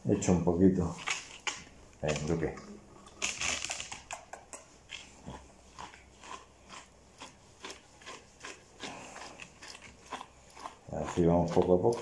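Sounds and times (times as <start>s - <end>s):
brush raking through dog coat: 7.2s - 12.0s.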